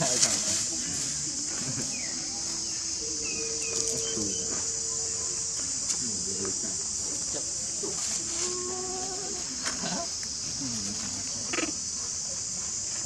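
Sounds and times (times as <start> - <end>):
insects droning: 0.0 - 13.0
faint held low tones: 0.7 - 7.8.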